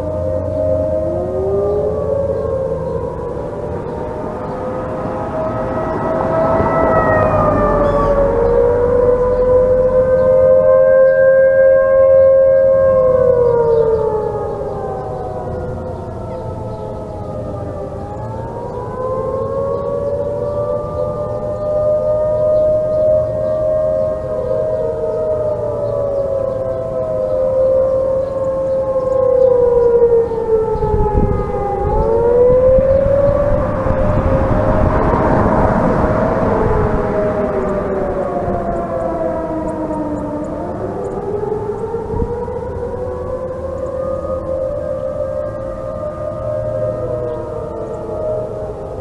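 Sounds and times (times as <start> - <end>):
distant tornado warning sirens: 0.0 - 49.0.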